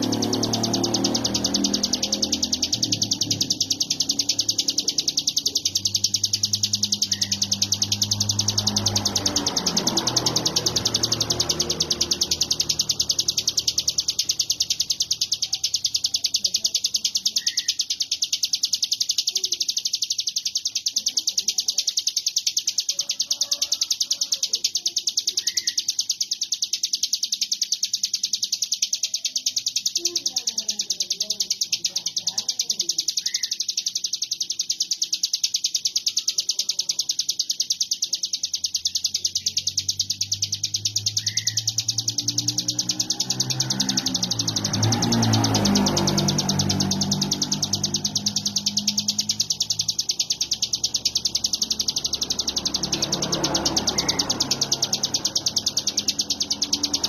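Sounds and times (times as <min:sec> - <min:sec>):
bird buzzing trill: 0:00.0 - 0:57.0.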